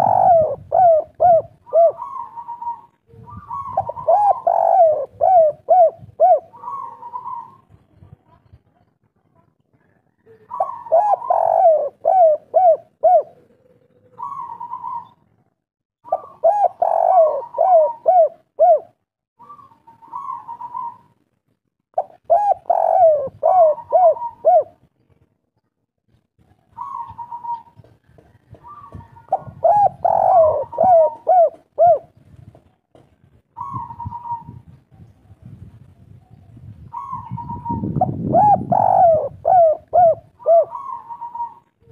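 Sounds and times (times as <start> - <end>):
dove cooing: 0.0 - 7.8, 10.2 - 15.2, 16.0 - 21.2, 22.0 - 24.9, 26.7 - 32.2, 33.6 - 35.1, 36.8 - 41.9.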